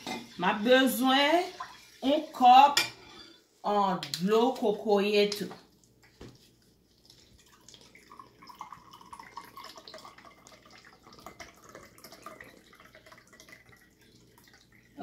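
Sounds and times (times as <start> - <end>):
liquid pouring into a bowl: 1.4 - 2.1, 5.8 - 15.0.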